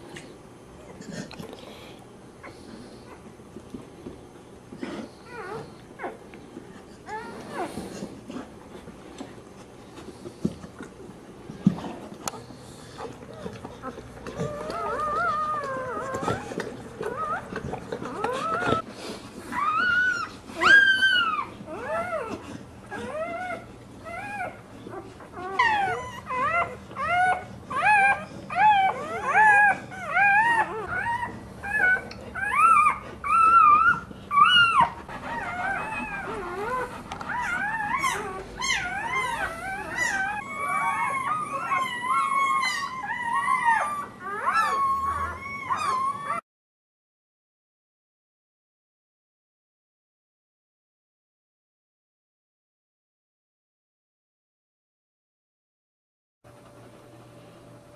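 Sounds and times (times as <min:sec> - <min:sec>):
puppies crying and squealing: 0:04.8 - 0:06.2, 0:06.9 - 0:08.5, 0:12.4 - 0:46.4.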